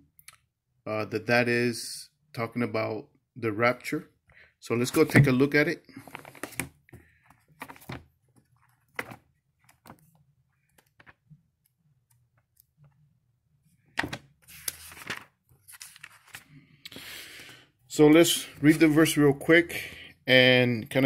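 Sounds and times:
thin pages flicking: 0:14.0 - 0:16.5.

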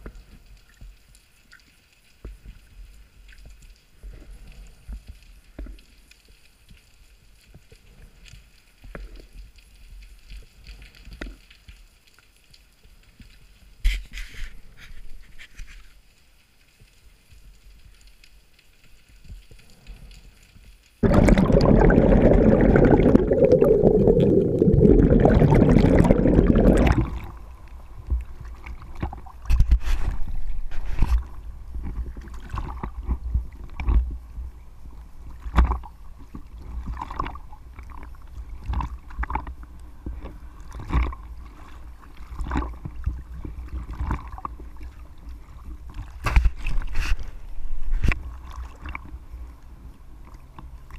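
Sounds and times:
water rushing and gurgling: 0:21.0 - 0:50.9.

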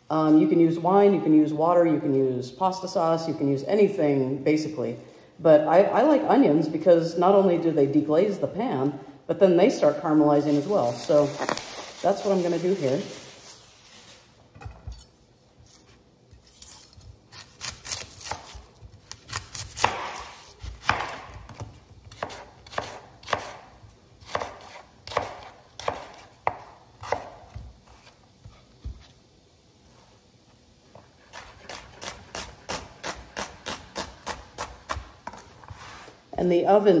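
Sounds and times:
knife chopping on cutting board: 0:17.3 - 0:28.1.

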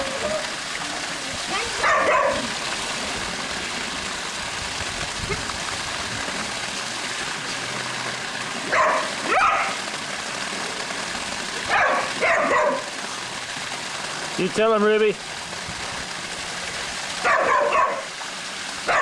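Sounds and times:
water splashing into pool: 0:00.0 - 0:19.0
dog barking: 0:01.8 - 0:02.5, 0:08.7 - 0:09.8, 0:11.7 - 0:12.9, 0:17.2 - 0:18.1.

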